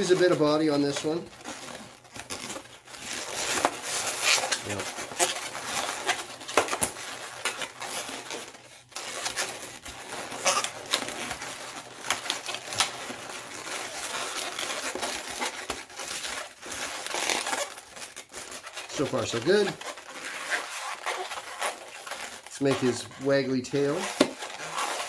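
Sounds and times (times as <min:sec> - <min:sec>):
balloons rubbing and squeaking: 0:00.0 - 0:25.0.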